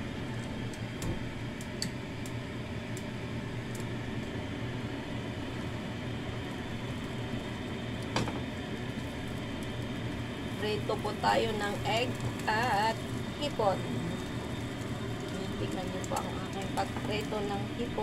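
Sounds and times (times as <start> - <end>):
low hum: 0.0 - 18.0
food sizzling in a pan: 6.3 - 18.0.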